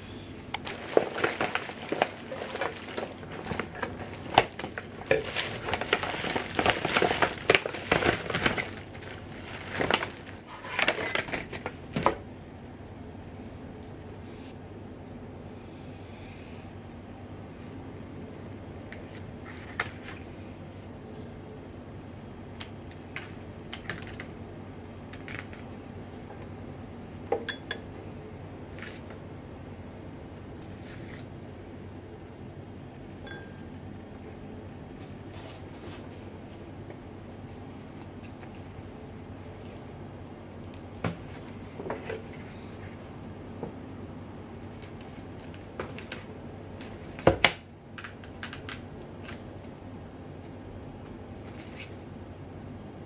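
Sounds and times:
steady low hum: 0:00.0 - 0:53.0
plastic wrapping crinkling: 0:00.7 - 0:12.0.

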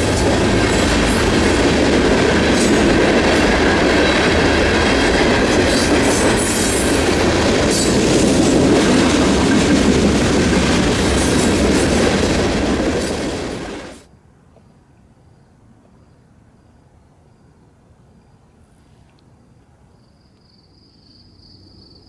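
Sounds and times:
freight train wheels on rails: 0:00.0 - 0:14.1.

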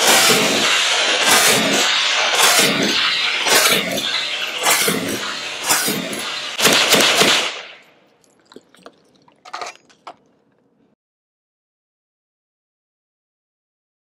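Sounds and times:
suppressed rifle shots: 0:06.6 - 0:07.8.

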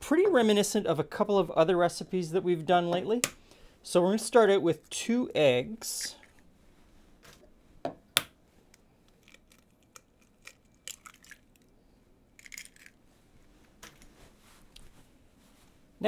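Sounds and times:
eggshell clicks and rustling: 0:08.7 - 0:11.7, 0:12.4 - 0:13.0.

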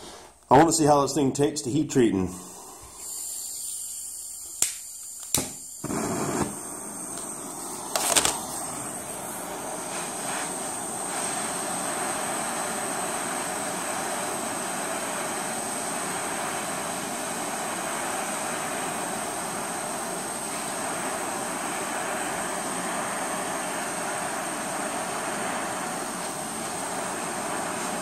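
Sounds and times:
gas torch flame hissing: 0:02.0 - 0:28.0
flame catching burst: 0:02.4 - 0:28.0
torch igniter clicks: 0:04.3 - 0:09.0.

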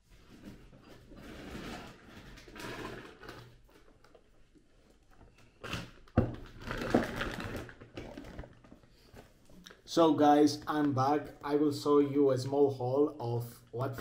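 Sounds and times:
plastic bag rustling: 0:05.4 - 0:09.4.

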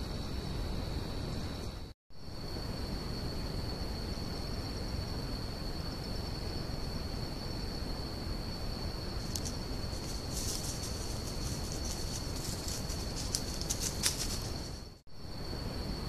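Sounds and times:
constant hiss: 0:00.0 - 0:16.0
crickets trilling: 0:00.0 - 0:16.0
dry crackling rustles: 0:09.2 - 0:15.0.

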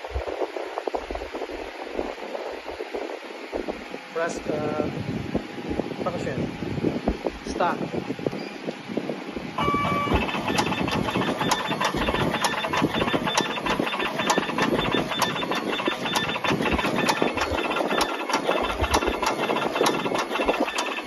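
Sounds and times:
machine motors whirring: 0:09.6 - 0:21.0.

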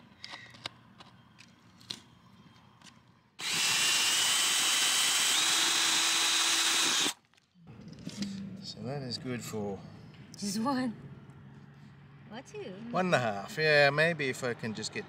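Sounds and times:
power drill boring through wood: 0:03.4 - 0:07.2.

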